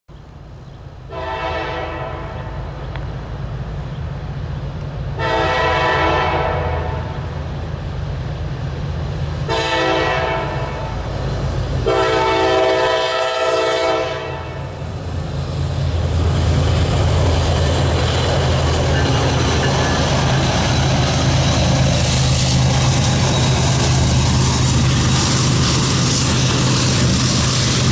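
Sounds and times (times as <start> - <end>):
train engine rumbling: 0.1 - 27.9
locomotive air horn blasts: 1.1 - 2.6, 5.2 - 7.2, 9.5 - 11.0, 11.8 - 14.7.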